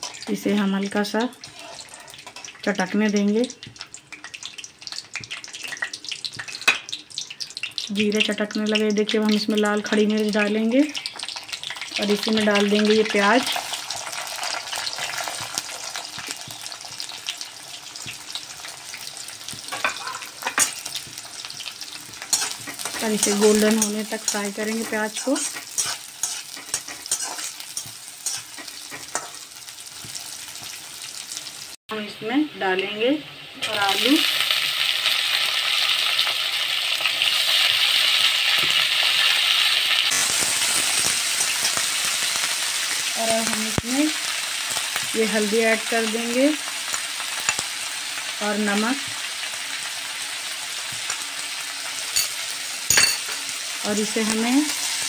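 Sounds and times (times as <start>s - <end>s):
vegetables stirred in a pan: 0.0s - 7.6s, 8.2s - 31.8s, 32.8s - 55.0s
onions sizzling in hot oil: 0.0s - 55.0s
metal spatula clinking on pan: 52.2s - 53.4s.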